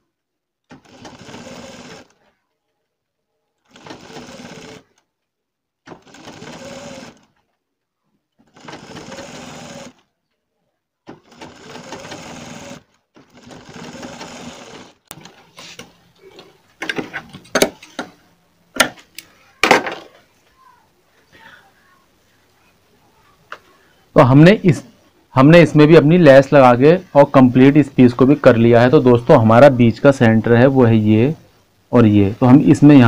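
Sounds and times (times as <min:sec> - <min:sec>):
sewing machine stitching: 0:00.7 - 0:02.2, 0:03.6 - 0:05.1, 0:05.8 - 0:07.5, 0:08.4 - 0:10.1, 0:11.0 - 0:17.0.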